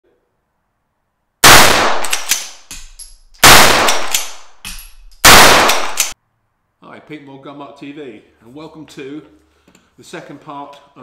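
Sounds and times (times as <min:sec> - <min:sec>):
rifle shots: 0:01.4 - 0:02.7, 0:03.4 - 0:04.6, 0:05.2 - 0:06.2
metallic action clicks: 0:02.0 - 0:06.2.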